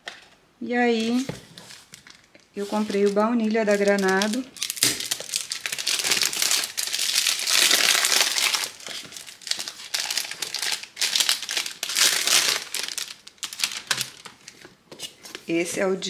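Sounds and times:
plastic wrap crinkling: 0:00.9 - 0:15.5.

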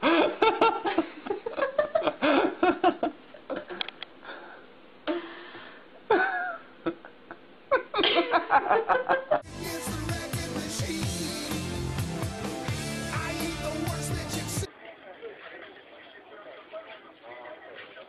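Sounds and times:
people laughing: 0:00.0 - 0:03.9, 0:06.1 - 0:09.4
music: 0:09.4 - 0:14.7
people talking: 0:13.2 - 0:18.0.

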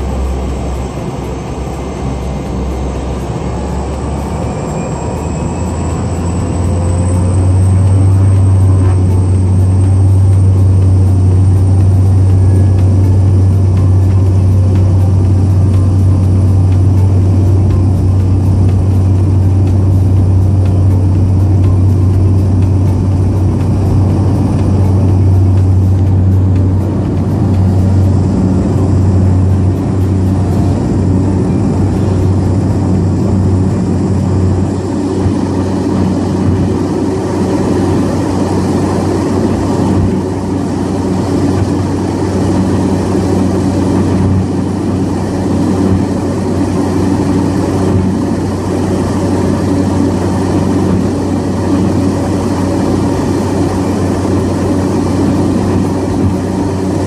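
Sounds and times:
propeller plane engine droning: 0:00.0 - 0:57.0.

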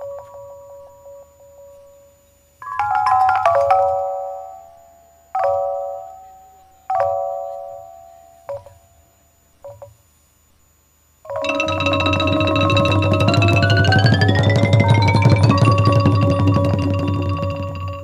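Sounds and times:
gong circle struck with mallets: 0:11.3 - 0:18.0.

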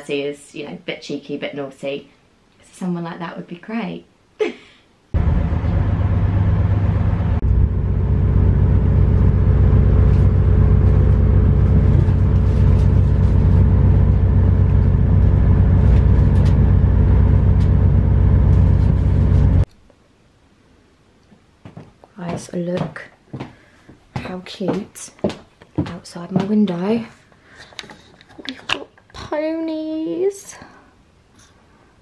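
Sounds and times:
train carriage rumble: 0:05.2 - 0:19.7.

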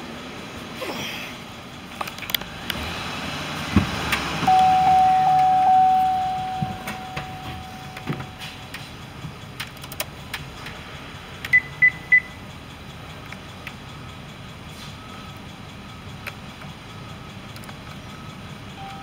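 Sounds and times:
electronic chime tone: 0:04.5 - 0:08.4
short high beeps: 0:04.5 - 0:08.4.

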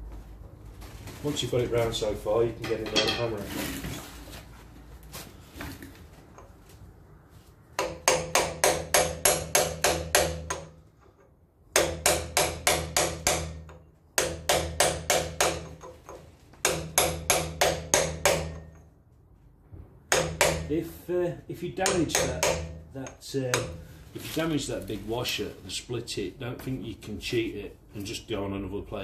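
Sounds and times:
hammer striking metal punch: 0:07.8 - 0:10.8, 0:11.7 - 0:15.9, 0:16.6 - 0:18.9, 0:20.1 - 0:20.8, 0:21.8 - 0:23.8.

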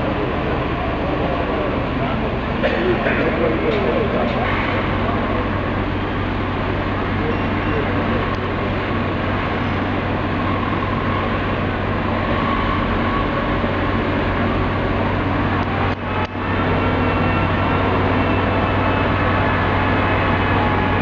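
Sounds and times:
diesel engines droning: 0:00.0 - 0:21.0.

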